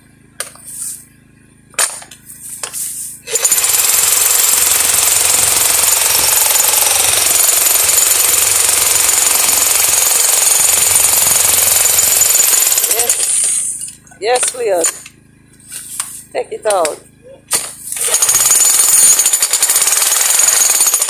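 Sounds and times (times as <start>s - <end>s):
jackhammer hammering into rock: 1.8s - 13.8s, 17.5s - 21.0s.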